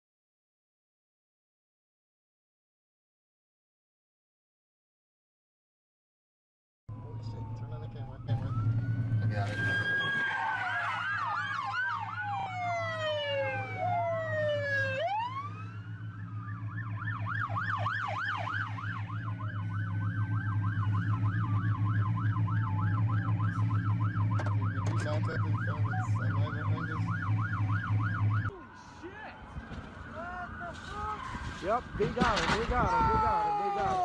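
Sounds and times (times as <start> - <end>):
siren fast yelp: 6.9 - 32.0
police siren wailing: 6.9 - 34.0.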